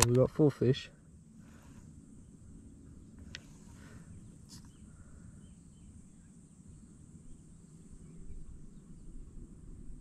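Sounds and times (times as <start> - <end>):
low steady rumble: 0.0 - 10.0
faint bird chirps: 1.4 - 9.9.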